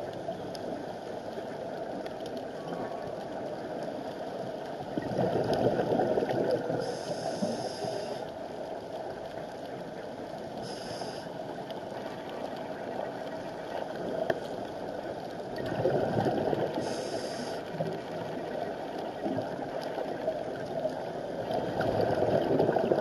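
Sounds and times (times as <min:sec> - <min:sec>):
steady underwater hiss: 0:00.0 - 0:23.0
gurgling exhaled bubbles: 0:04.9 - 0:08.1, 0:15.5 - 0:23.0
diver breathing through regulator: 0:06.8 - 0:08.2, 0:10.6 - 0:11.3, 0:16.8 - 0:17.7.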